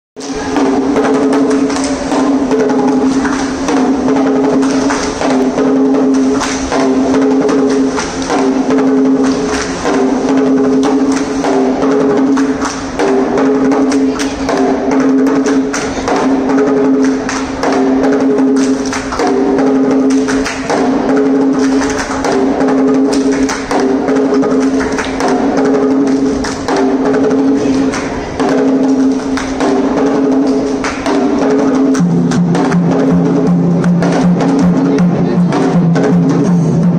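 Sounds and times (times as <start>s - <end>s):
drums beaten with sticks: 0.2s - 36.9s.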